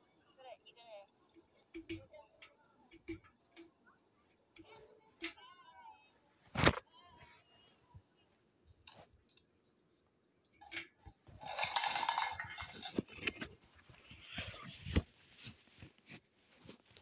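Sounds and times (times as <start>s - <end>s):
plastic cups clattering: 10.5s - 15.0s
cups hitting the floor: 10.7s - 13.5s.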